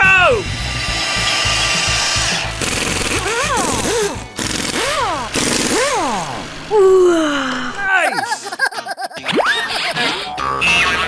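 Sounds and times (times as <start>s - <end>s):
buzzing drill-like mechanical noise: 0.3s - 6.7s
crackling electric zap hiss: 1.1s - 6.4s.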